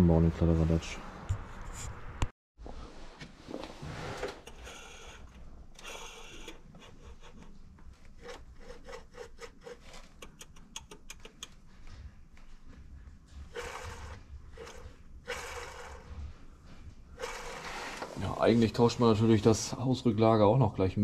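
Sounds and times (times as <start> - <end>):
bearing rubbing clicks: 4.4 - 11.7.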